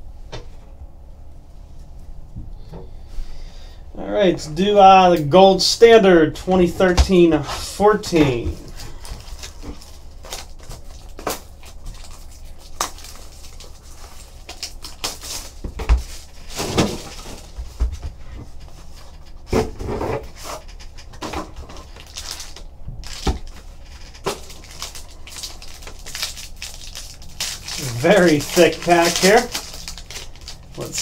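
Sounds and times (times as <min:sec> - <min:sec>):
cardboard rustling: 0:06.5 - 0:31.0
foil pack handled: 0:07.5 - 0:17.8, 0:20.2 - 0:31.0
plastic wrap crinkling and tearing: 0:08.2 - 0:17.6, 0:21.8 - 0:31.0.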